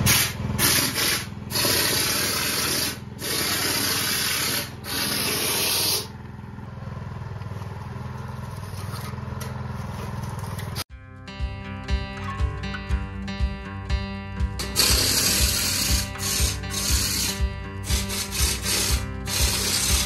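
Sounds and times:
sprayer hissing air bursts: 0.0 - 6.1, 14.6 - 20.0
air compressor hum: 0.0 - 10.8, 14.4 - 20.0.

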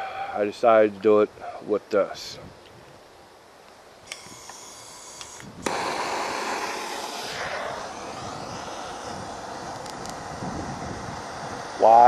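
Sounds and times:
steady hissing rush: 0.0 - 2.5, 3.9 - 12.0
flame whoosh: 5.5 - 12.0.

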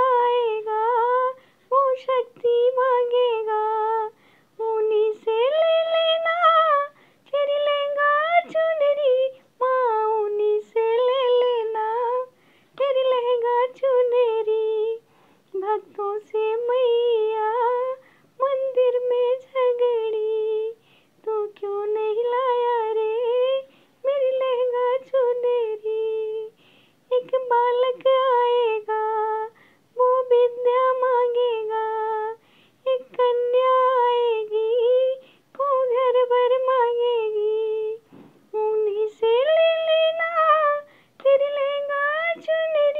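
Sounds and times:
woman singing devotional song: 0.0 - 42.9.

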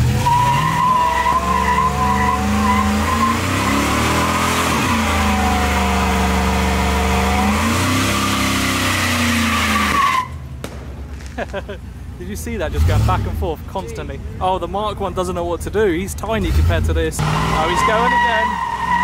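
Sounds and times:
car engine revving high: 0.0 - 10.3, 16.4 - 19.0
tyres squealing: 0.0 - 10.4, 16.4 - 19.0.

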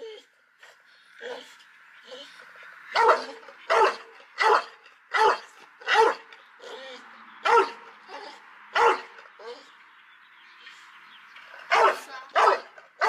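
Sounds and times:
dog barking: 2.9 - 6.3, 7.4 - 8.2, 8.8 - 9.2, 11.7 - 12.8.

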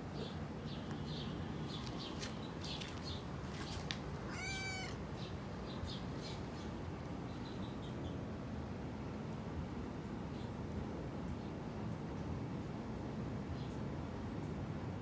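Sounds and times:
steady background noise: 0.0 - 15.0
cat meowing: 4.2 - 5.0.

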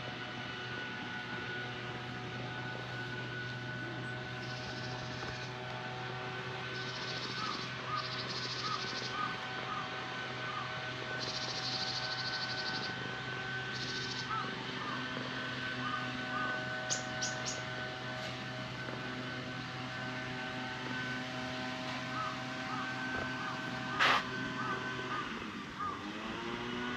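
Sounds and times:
steady low hum: 0.0 - 26.9
faint bird calls: 4.1 - 5.6, 6.7 - 18.4, 21.8 - 26.1.

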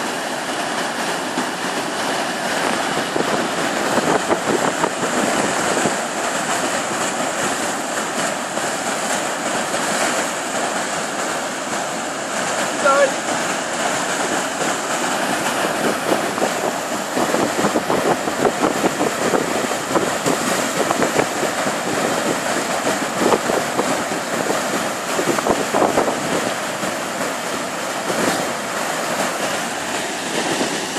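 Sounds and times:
rushing whitewater: 0.0 - 30.9.

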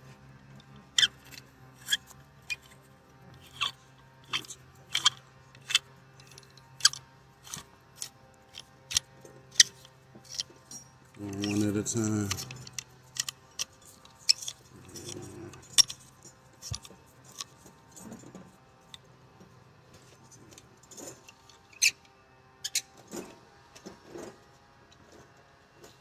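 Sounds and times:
metal tools clinking: 3.4 - 18.4.

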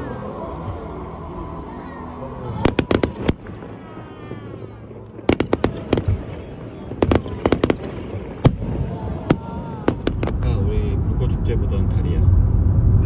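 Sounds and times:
fireworks bangs: 2.5 - 10.8
low steady rumble: 9.5 - 13.0.

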